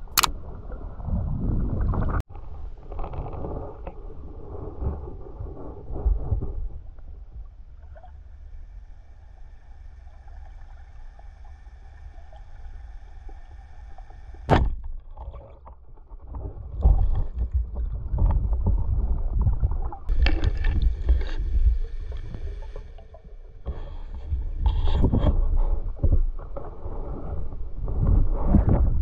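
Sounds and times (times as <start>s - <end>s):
crackling water movement: 0.0s - 29.0s
sharp click: 0.1s - 0.3s
underwater water rushing: 7.2s - 28.9s.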